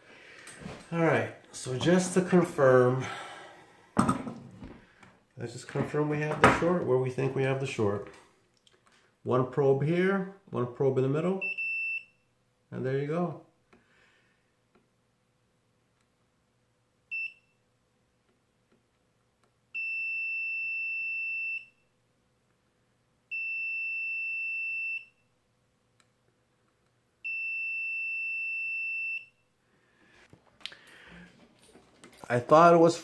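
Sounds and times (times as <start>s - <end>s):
multimeter beeps: 11.4s - 12.2s, 19.8s - 21.9s, 23.3s - 25.2s, 27.2s - 29.4s.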